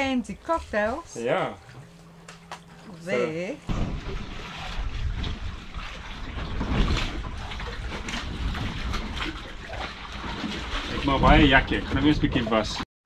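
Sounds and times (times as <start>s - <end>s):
sea water washing past hull: 0.0s - 12.8s
wind buffeting microphone: 3.7s - 9.8s.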